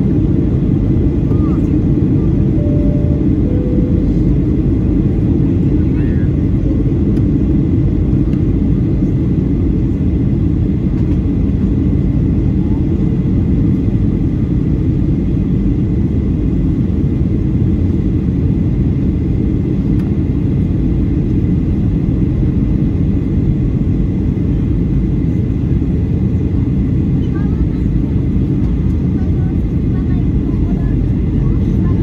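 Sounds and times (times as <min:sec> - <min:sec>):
engines and rushing air: 0:01.8 - 0:05.6
faint high whine: 0:02.4 - 0:05.2.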